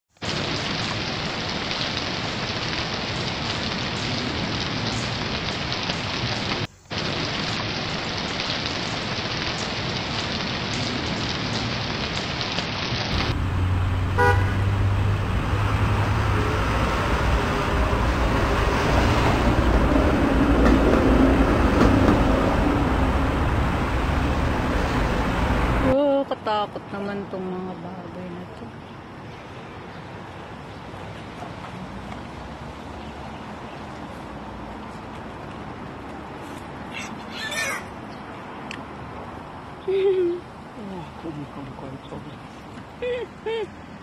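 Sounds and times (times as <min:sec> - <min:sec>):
steady hiss: 0:00.2 - 0:13.7
traffic engine hum: 0:08.7 - 0:44.0
car horn toot: 0:14.2 - 0:14.7.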